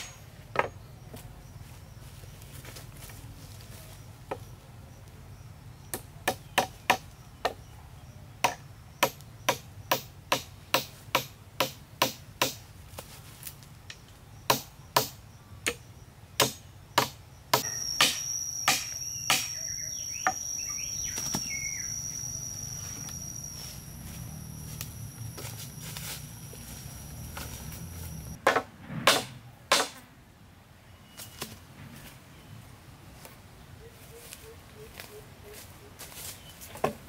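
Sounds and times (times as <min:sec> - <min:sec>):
hatchet chopping wood: 0:05.9 - 0:07.6, 0:08.4 - 0:12.6, 0:14.5 - 0:15.8, 0:16.4 - 0:19.6, 0:28.2 - 0:30.0
insect buzzing: 0:17.6 - 0:28.4.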